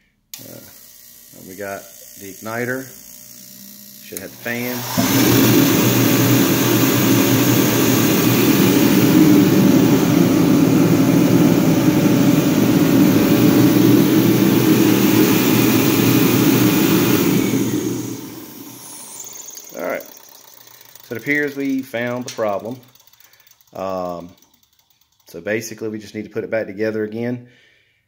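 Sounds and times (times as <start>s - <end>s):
heater fan and flame roaring: 4.1s - 23.0s.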